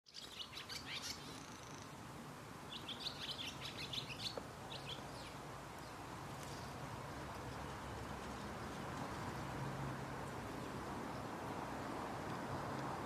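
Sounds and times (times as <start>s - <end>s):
blue tits chirping: 0.1s - 2.0s, 2.7s - 8.5s.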